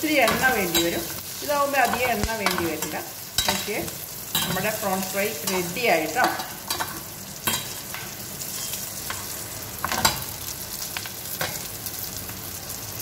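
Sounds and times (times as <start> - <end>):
prawns sizzling in a pan: 0.0 - 13.0
metal spatula scraping a pan: 0.2 - 10.3.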